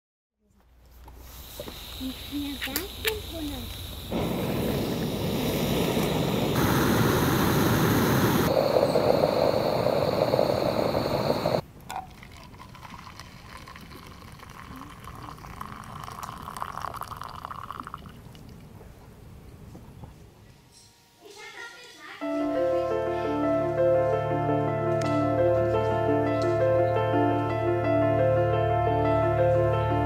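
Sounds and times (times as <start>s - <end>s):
gas stove hissing: 1.2s - 11.6s
coffee pouring into mug: 8.5s - 18.3s.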